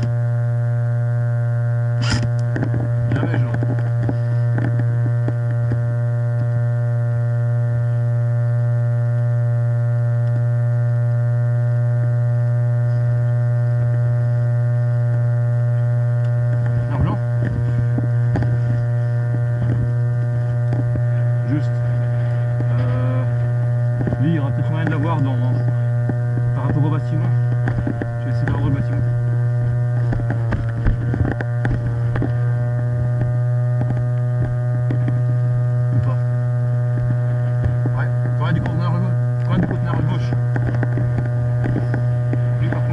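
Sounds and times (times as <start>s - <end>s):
loud buzzy electrical hum: 0.0s - 42.9s
short clicks and knocks: 39.4s - 42.9s.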